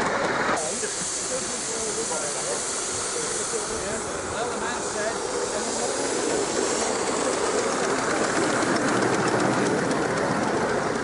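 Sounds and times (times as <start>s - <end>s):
steam locomotive rushing steam: 0.0s - 11.0s
wheels running on rails: 2.4s - 11.0s.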